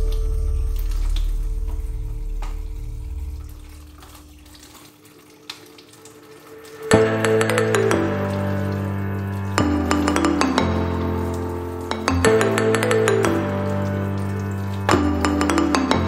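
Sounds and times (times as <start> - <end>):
tap water running onto hands: 0.0 - 16.0
background music: 6.5 - 16.0.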